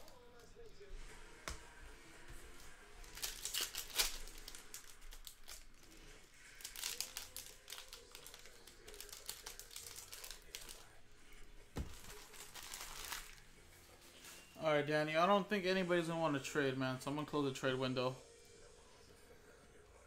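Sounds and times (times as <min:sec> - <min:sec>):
wrappers torn and crinkled: 0:02.6 - 0:11.0, 0:11.8 - 0:13.5.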